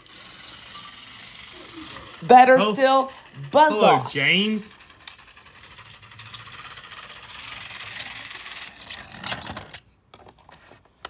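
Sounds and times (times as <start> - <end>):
toy train mechanism whirring: 0.0 - 10.7.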